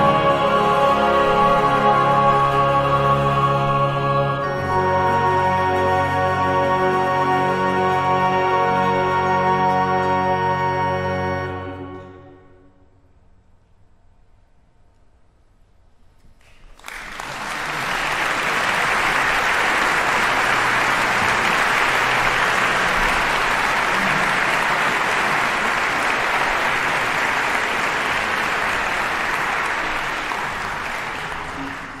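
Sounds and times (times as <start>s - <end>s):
audience applause: 16.7s - 32.0s.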